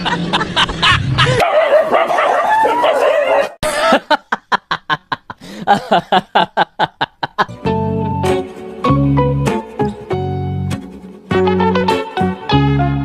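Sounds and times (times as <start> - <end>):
people laughing: 0.0 - 1.4, 3.6 - 7.6.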